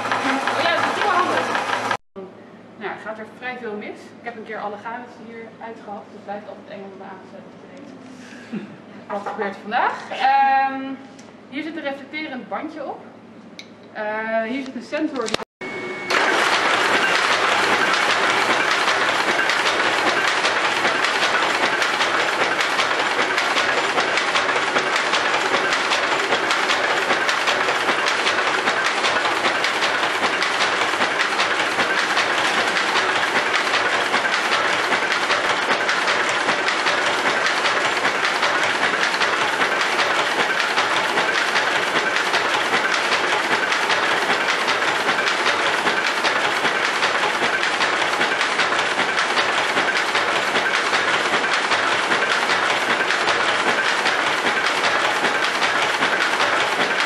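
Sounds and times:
power loom clattering: 0:00.0 - 0:02.0, 0:16.1 - 0:57.0.

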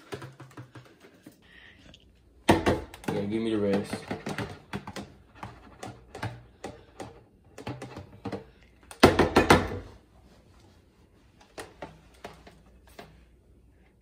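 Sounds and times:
blender jar knocks and clunks: 0:02.4 - 0:09.9.

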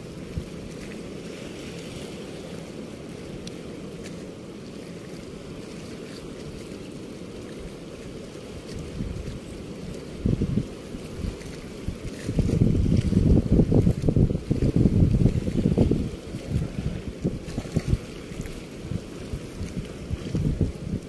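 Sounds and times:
wind buffeting microphone: 0:07.6 - 0:21.0.

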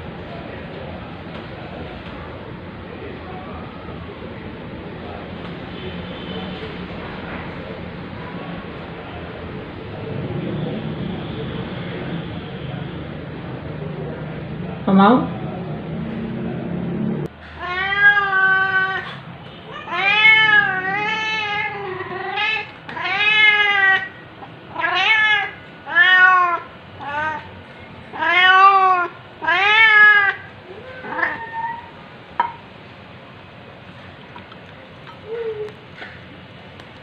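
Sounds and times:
cat meowing: 0:17.6 - 0:27.5, 0:28.1 - 0:31.9.

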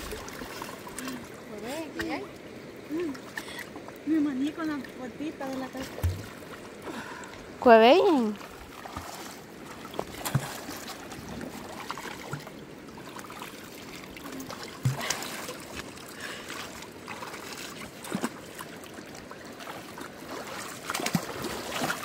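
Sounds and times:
river water sloshing: 0:00.0 - 0:22.0
sharp splashes: 0:08.0 - 0:12.5, 0:19.6 - 0:22.0.

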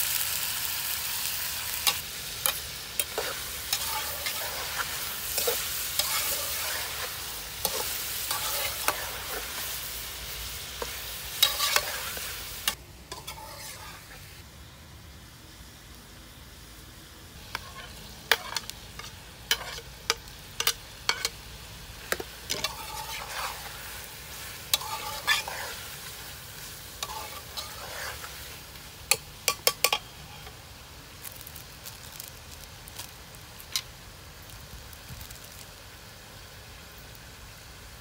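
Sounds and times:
chicken sizzling: 0:00.0 - 0:38.0
metal spatula clinking on pan: 0:20.6 - 0:21.4.

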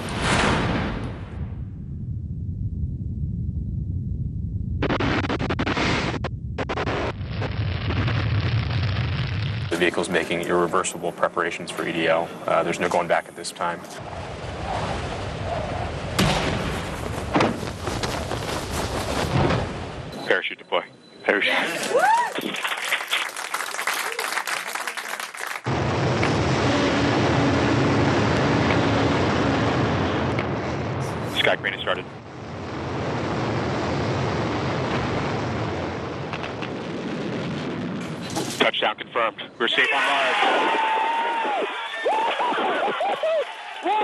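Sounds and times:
rocket thruster roar: 0:00.0 - 0:10.0, 0:14.0 - 0:17.9, 0:25.6 - 0:39.0
steady rushing rumble: 0:00.0 - 0:10.0, 0:25.7 - 0:39.4
sharp bangs: 0:16.0 - 0:20.1.

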